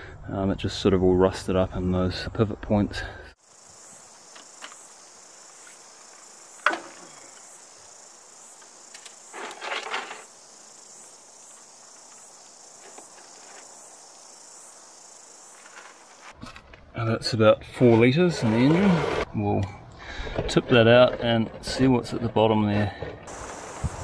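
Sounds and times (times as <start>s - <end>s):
insects chirring: 3.4s - 16.4s, 23.3s - 24.0s.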